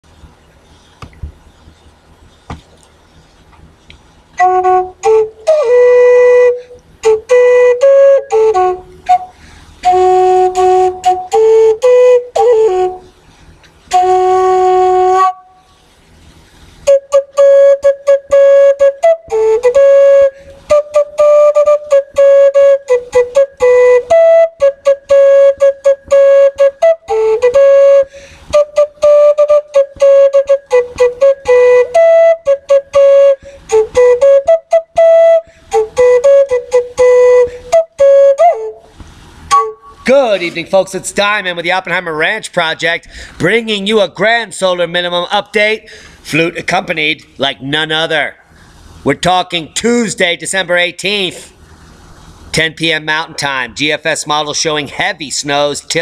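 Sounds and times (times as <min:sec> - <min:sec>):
flute playing slow melody: 0:04.4 - 0:16.0, 0:16.8 - 0:40.1.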